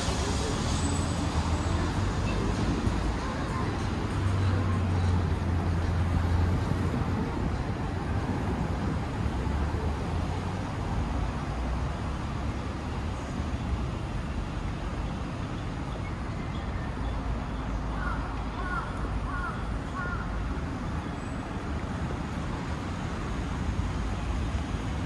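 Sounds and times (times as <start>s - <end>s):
low traffic rumble: 0.0s - 25.0s
crow cawing: 18.0s - 20.2s.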